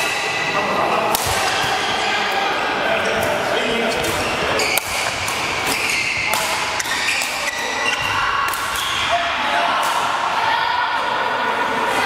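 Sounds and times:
echoing voices: 0.0 - 12.0
rackets hitting shuttlecocks: 1.1 - 1.8, 3.1 - 9.1
shoes squeaking on court floor: 3.1 - 9.1.

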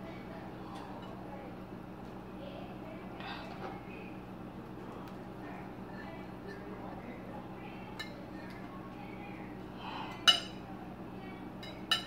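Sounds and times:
knife clinking against plate: 11.6 - 12.0.

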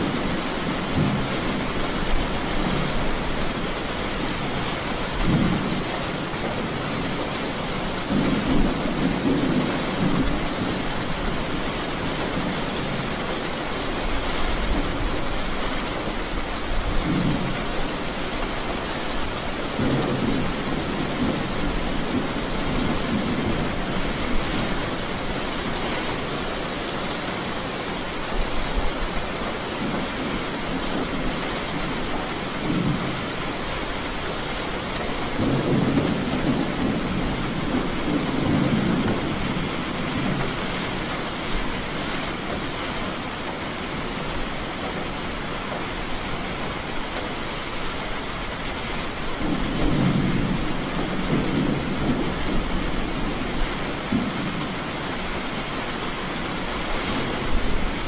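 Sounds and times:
thunder rumbling: 0.0 - 13.1, 19.7 - 25.7, 29.8 - 45.8, 48.4 - 58.0
steady rain falling: 0.0 - 58.0.

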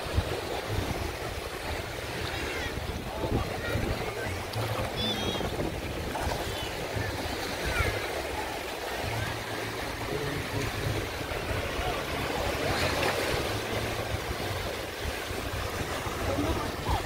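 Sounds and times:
wind buffeting microphone: 0.0 - 8.5, 10.0 - 17.0
water sloshing while wading: 0.0 - 17.0.

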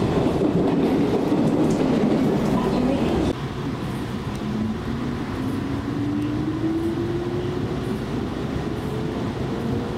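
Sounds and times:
train rumble inside carriage: 0.0 - 9.9.

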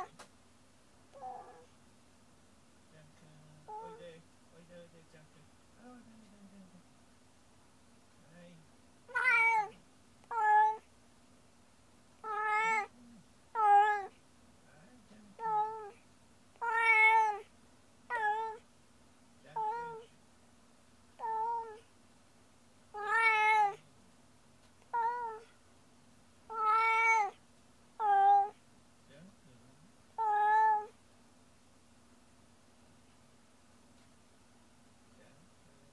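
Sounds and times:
cat meowing: 1.1 - 1.7, 9.1 - 10.9, 12.2 - 13.0, 13.6 - 14.2, 15.4 - 16.0, 16.6 - 17.5, 18.1 - 18.6, 19.6 - 20.1, 21.2 - 21.8, 22.9 - 23.8, 24.9 - 25.5, 26.5 - 27.4, 28.0 - 28.6, 30.2 - 31.0.

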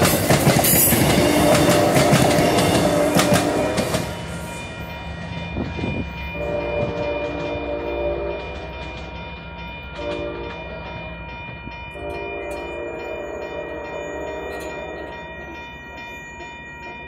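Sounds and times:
crossing bell ringing: 0.0 - 17.0
train horn: 1.0 - 4.1, 6.4 - 8.7, 10.0 - 10.8, 12.0 - 15.1.

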